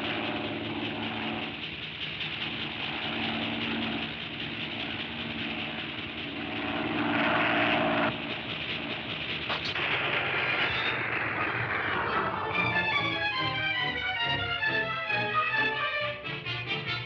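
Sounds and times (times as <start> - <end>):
higher machine hum: 0.0 - 17.0
mechanical droning hum: 0.0 - 17.0.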